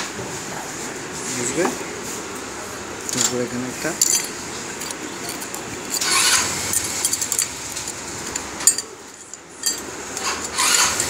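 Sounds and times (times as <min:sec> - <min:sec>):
metal engine parts clinking: 0:03.1 - 0:11.0.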